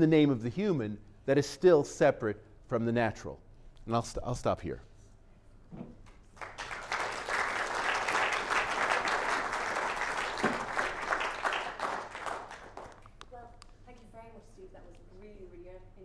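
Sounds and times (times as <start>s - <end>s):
audience applauding: 6.4s - 13.1s.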